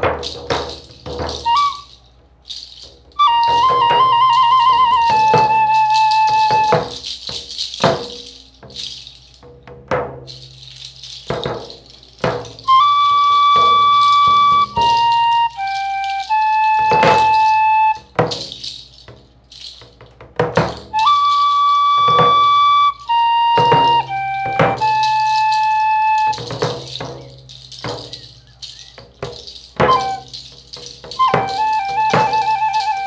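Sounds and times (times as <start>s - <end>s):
hand rattle shaken: 0.0s - 33.0s
flute long notes: 1.4s - 2.0s, 3.2s - 7.0s, 12.6s - 18.1s, 20.9s - 26.7s, 29.8s - 30.4s, 31.1s - 33.0s.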